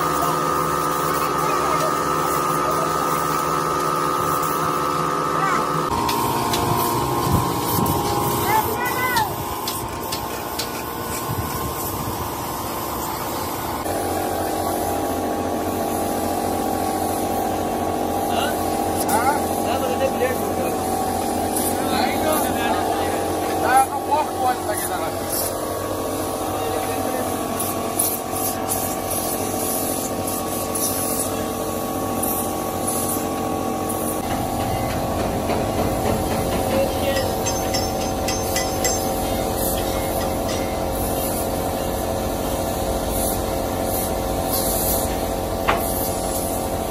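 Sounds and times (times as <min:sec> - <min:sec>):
hiss: 0:00.0 - 0:22.8, 0:23.6 - 0:46.9
machine hum: 0:01.2 - 0:13.9, 0:33.6 - 0:44.3
steady hum: 0:29.3 - 0:46.9.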